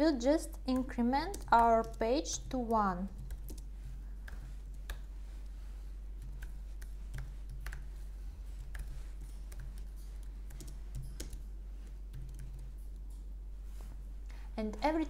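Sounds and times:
steady low hum: 0:00.0 - 0:15.0
keyboard typing: 0:00.5 - 0:05.1, 0:06.2 - 0:13.3.

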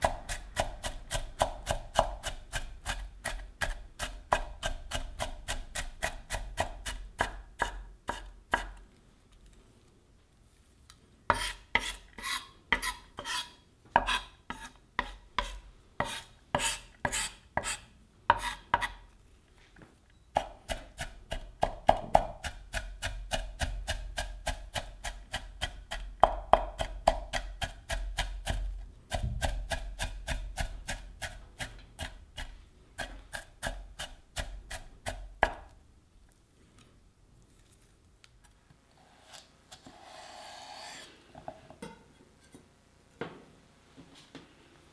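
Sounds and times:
knife chopping on cutting board: 0:00.0 - 0:08.8, 0:11.3 - 0:19.0, 0:20.4 - 0:35.7.

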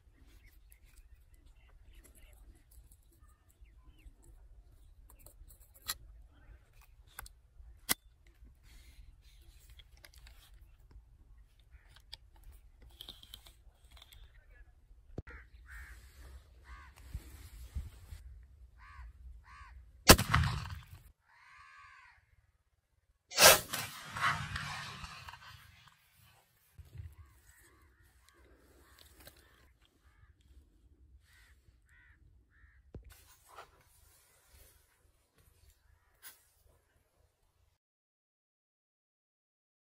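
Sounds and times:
crows cawing: 0:15.3 - 0:17.0, 0:18.8 - 0:19.8, 0:21.2 - 0:22.5, 0:31.3 - 0:32.8
shotgun blasts: 0:20.1 - 0:21.1, 0:23.3 - 0:25.6.

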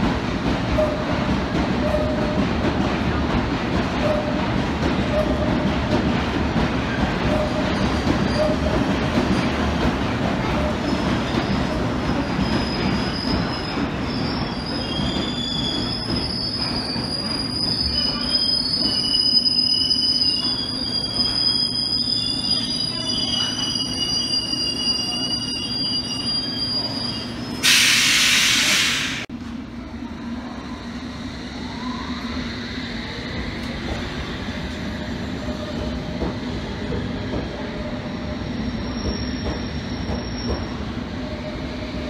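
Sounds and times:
train wheels rumbling on track: 0:00.0 - 0:42.0
high-pitched brake squeal: 0:12.3 - 0:29.2, 0:38.1 - 0:42.0.

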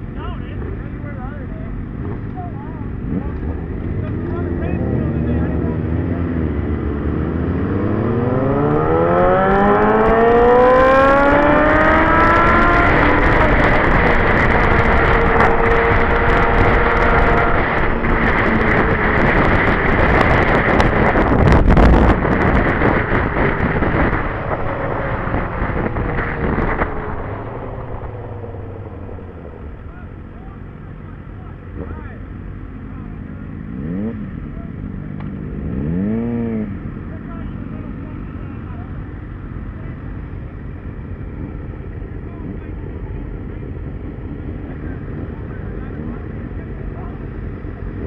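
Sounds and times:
motorcycle engine accelerating: 0:00.0 - 0:48.0
wind noise on microphone: 0:03.0 - 0:29.8.

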